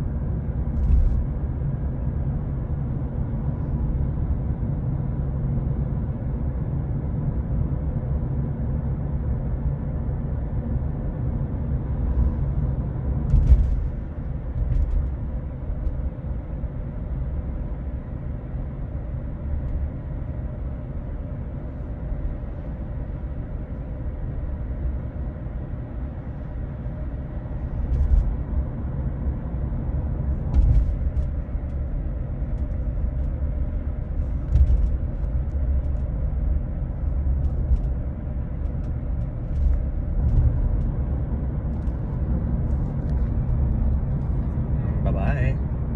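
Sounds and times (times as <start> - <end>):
road and tyre rumble: 0.0 - 45.9
thumps from road surface: 13.3 - 14.0, 30.4 - 31.4, 34.4 - 35.0.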